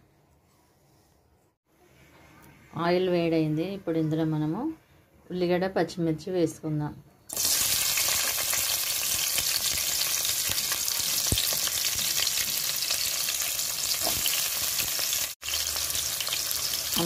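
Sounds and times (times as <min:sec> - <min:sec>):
onions sizzling in hot oil: 0:07.3 - 0:17.0.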